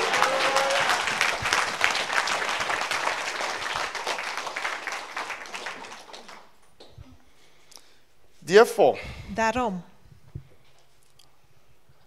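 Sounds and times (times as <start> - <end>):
congregation applauding: 0.0 - 6.6.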